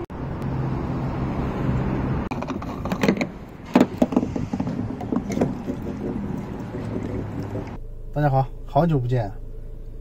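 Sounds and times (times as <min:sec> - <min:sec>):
steady low hum: 0:05.5 - 0:10.0.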